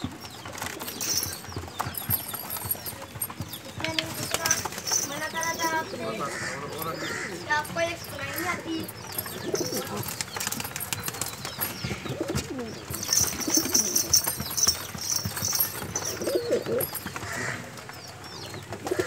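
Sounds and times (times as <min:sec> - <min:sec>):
pigeons cooing: 0:00.0 - 0:19.0
rustling: 0:07.1 - 0:17.9.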